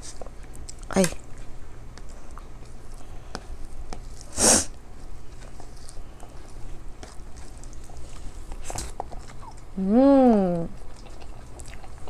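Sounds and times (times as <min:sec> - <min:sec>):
sharp burst of breath: 0:04.3 - 0:04.7.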